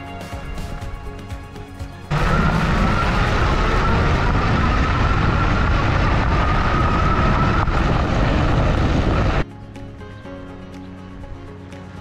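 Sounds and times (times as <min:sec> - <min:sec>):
wind: 0:00.0 - 0:12.0
hub motor whine: 0:02.1 - 0:09.4.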